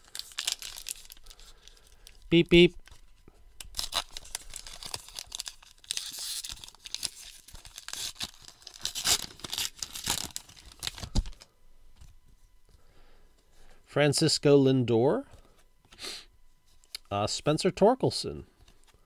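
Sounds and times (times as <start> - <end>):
card pack wrapper tearing and crinkling: 0.0 - 3.0, 3.6 - 11.5.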